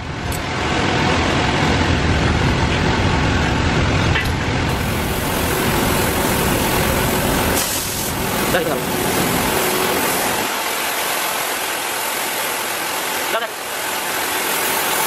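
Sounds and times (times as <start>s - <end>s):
gas torch hissing: 4.7s - 15.0s.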